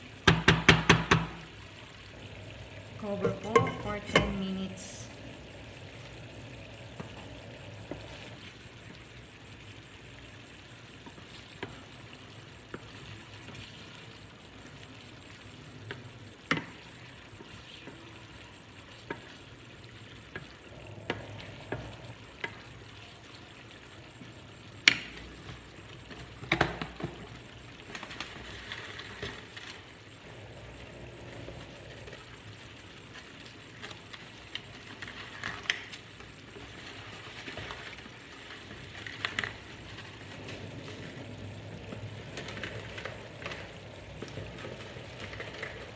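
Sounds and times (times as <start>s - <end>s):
wooden spoon knocking against pan: 0.2s - 1.4s.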